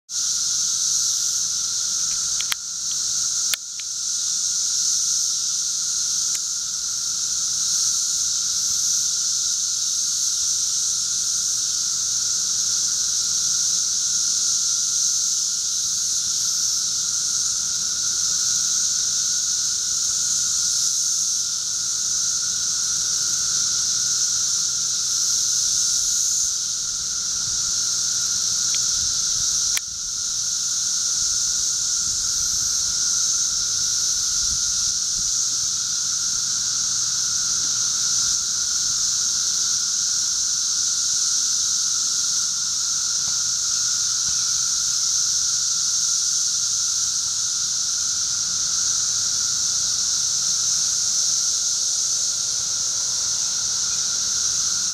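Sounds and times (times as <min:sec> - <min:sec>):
cicadas buzzing: 0:00.1 - 0:54.9
low steady whine: 0:21.6 - 0:35.4.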